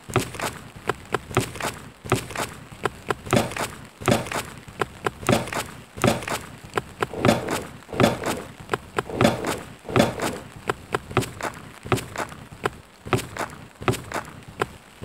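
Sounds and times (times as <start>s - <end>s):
heavy footsteps: 3.4s - 4.4s, 5.3s - 6.4s, 7.0s - 10.8s.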